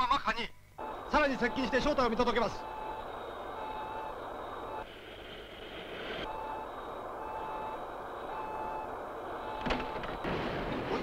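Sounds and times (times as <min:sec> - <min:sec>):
steady engine hum: 0:00.6 - 0:11.0
hissing noise: 0:00.8 - 0:11.0
short electronic beeps: 0:01.3 - 0:04.9.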